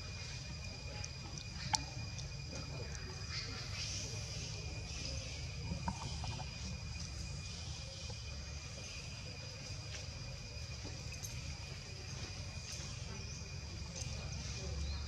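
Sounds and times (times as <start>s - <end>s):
high-pitched insect drone: 0.0s - 15.0s
faint clicks: 1.0s - 3.2s.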